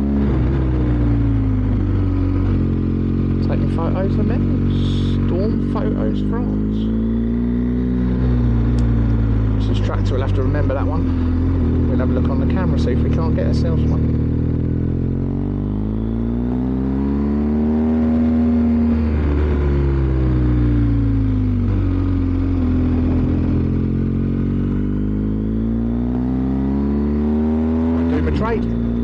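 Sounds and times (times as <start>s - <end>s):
motorcycle engine accelerating: 0.0s - 29.0s.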